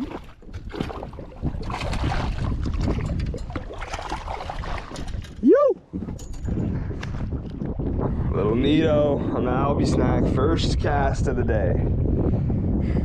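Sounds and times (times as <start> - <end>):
water splashing: 0.0 - 5.5
knocks and clatter of fish landing: 0.0 - 7.2
wind against boat: 0.0 - 13.0
person whooping: 5.4 - 5.8.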